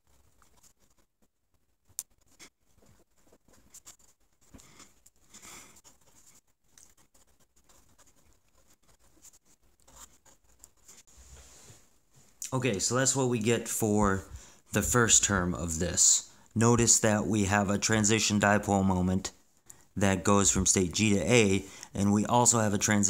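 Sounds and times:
pencil scratching on paper: 0.0s - 1.1s, 2.2s - 11.7s.

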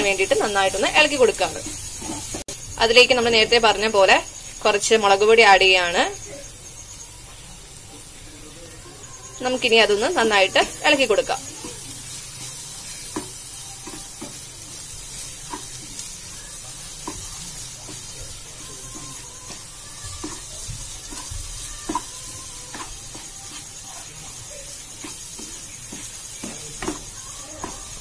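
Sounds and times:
spatula scraping a pan: 0.0s - 2.5s, 9.3s - 28.0s
masala sizzling: 0.0s - 28.0s.

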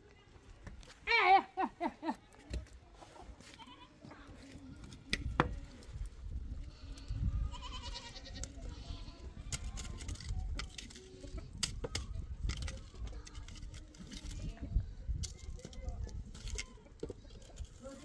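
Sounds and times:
goats bleating: 7.0s - 9.4s.

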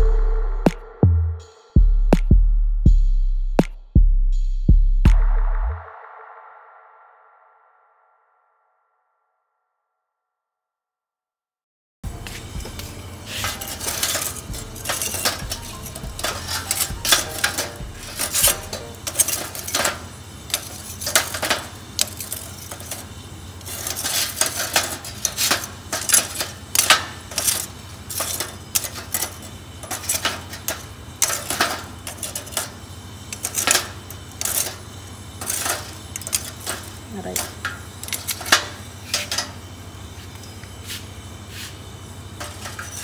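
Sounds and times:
gas burner rushing: 12.0s - 43.0s
metal tongs clinking on charcoal: 12.1s - 39.7s, 42.4s - 43.0s.

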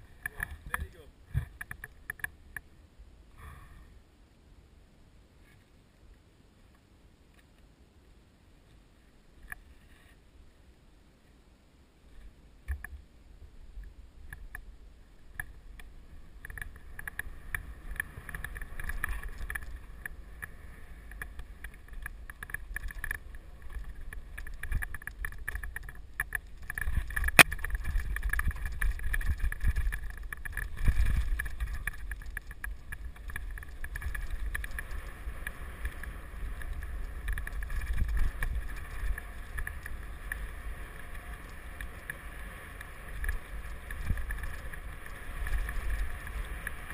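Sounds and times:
bike rattles and clicks: 0.0s - 2.6s, 14.3s - 46.9s
wind rumbling on microphone: 12.1s - 46.9s
tyres on dirt and leaves: 15.2s - 46.9s.

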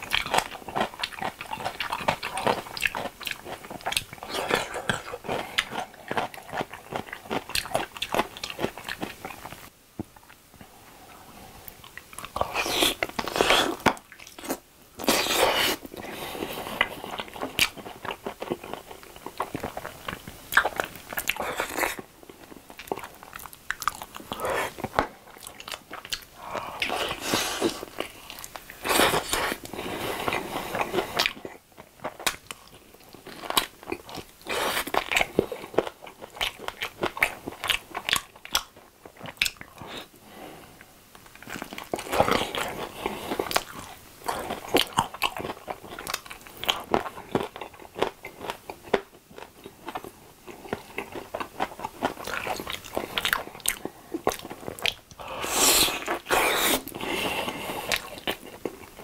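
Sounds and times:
biting and chewing chicken: 0.0s - 9.6s.

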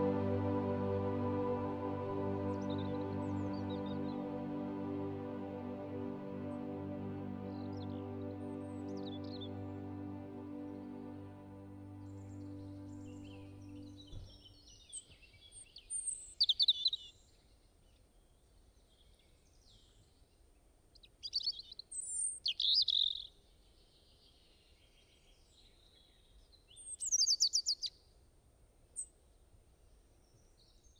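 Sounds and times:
faint hiss: 0.0s - 14.7s
songbird chirping and trilling: 0.0s - 17.3s, 21.0s - 28.0s.

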